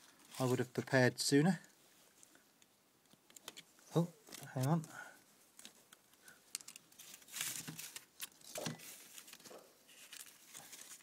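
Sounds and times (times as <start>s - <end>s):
plastic rustle: 6.6s - 11.0s.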